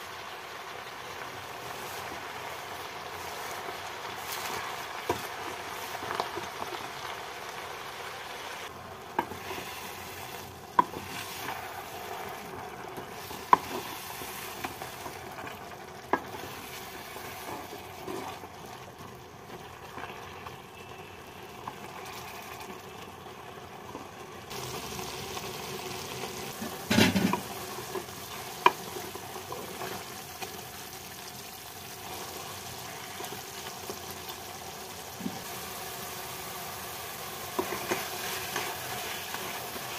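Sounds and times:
greens sizzling in a pan: 0.0 - 39.9
wooden spatula knocking pan: 26.6 - 27.6.

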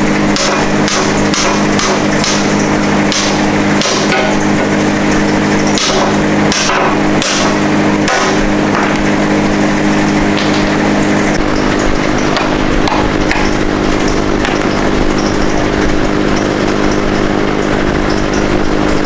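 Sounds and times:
steady low hum: 0.0 - 19.0
hammer striking steel: 0.3 - 4.4, 5.7 - 9.0.

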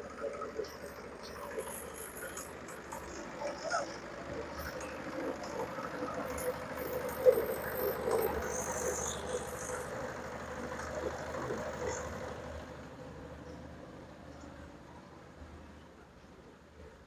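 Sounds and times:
small engine running steadily: 0.0 - 15.7.

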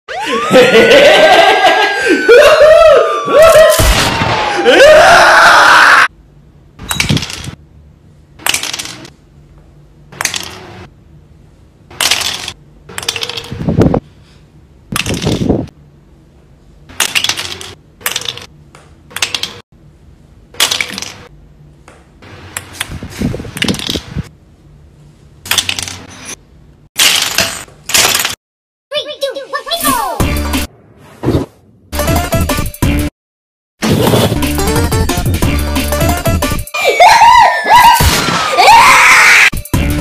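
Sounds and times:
loud shout: 0.2 - 6.1, 36.9 - 39.5
plastic blocks clattering: 8.4 - 9.1, 12.0 - 13.6, 17.0 - 18.5, 20.6 - 21.3, 27.0 - 28.4.

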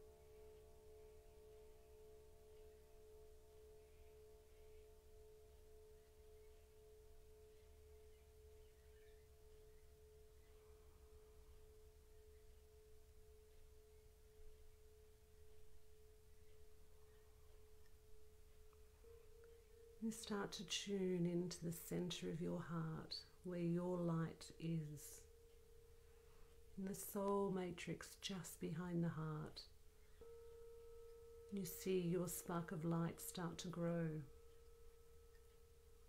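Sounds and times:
singing bowl ringing: 0.0 - 23.3, 29.2 - 36.0.

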